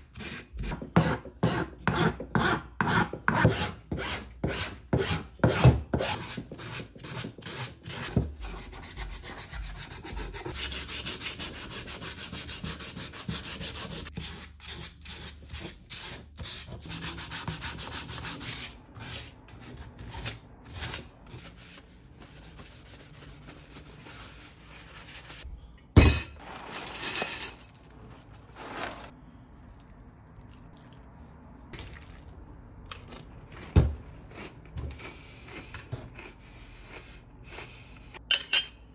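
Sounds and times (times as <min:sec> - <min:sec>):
metal file on wood: 0:00.1 - 0:19.4
sandpaper rubbing wood: 0:06.0 - 0:19.3.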